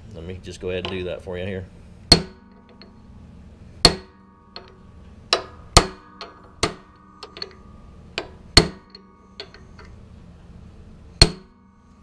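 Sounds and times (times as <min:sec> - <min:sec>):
hammer striking steel socket: 0:02.1 - 0:03.2, 0:03.8 - 0:10.0, 0:11.2 - 0:12.0.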